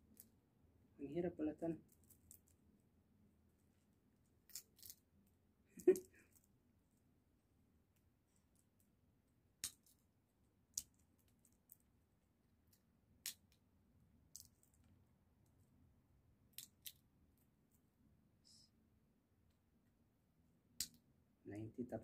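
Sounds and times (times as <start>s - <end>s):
sunflower seed shells cracking: 1.8s - 2.6s, 4.4s - 5.1s, 9.5s - 11.9s, 12.6s - 15.0s, 16.4s - 17.1s, 20.8s - 21.0s.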